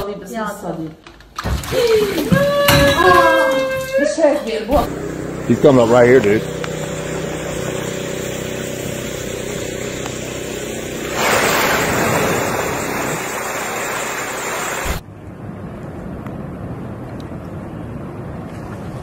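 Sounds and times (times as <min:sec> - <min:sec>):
engine hum: 0:04.7 - 0:19.0
loud rush of splashing water: 0:10.8 - 0:15.0.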